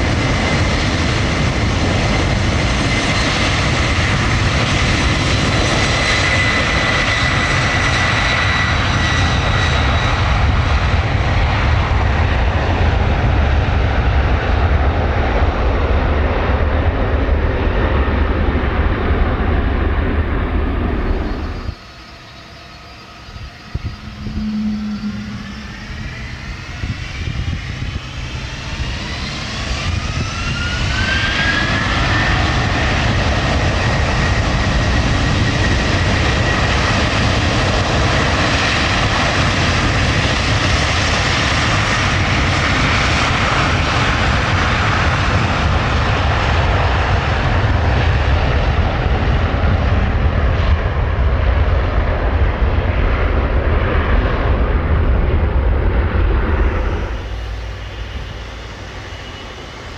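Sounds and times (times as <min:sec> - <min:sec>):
jet engine roar: 0:00.0 - 0:59.9
jet engines spooling up: 0:17.6 - 0:59.9.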